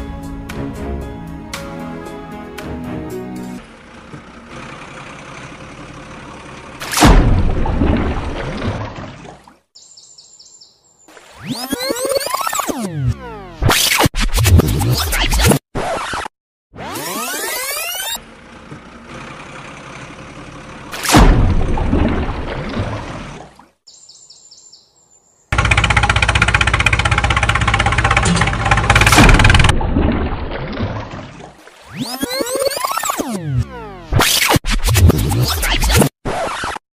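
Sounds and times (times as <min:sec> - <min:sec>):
tractor engine chugging: 0:03.6 - 0:06.8, 0:18.2 - 0:20.9, 0:25.6 - 0:29.7
water splash: 0:06.8 - 0:09.7, 0:11.1 - 0:11.8, 0:20.9 - 0:23.8, 0:28.3 - 0:33.4
water sloshing: 0:07.4 - 0:09.7, 0:21.0 - 0:23.8, 0:28.6 - 0:32.2
high bird-like chirps: 0:09.8 - 0:12.6, 0:23.9 - 0:25.2.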